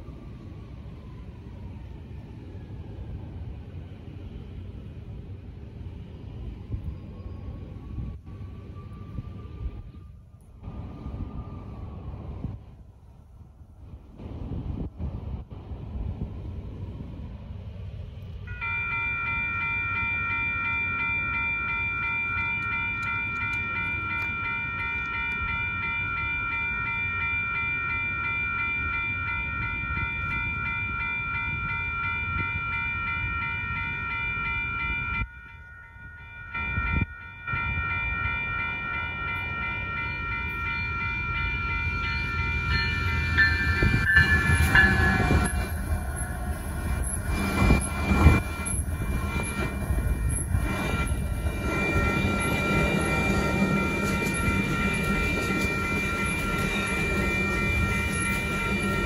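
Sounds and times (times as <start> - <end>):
train engine and wheels on rails: 0.0 - 59.0
railroad crossing bell: 18.2 - 59.0
train horn: 42.4 - 59.0.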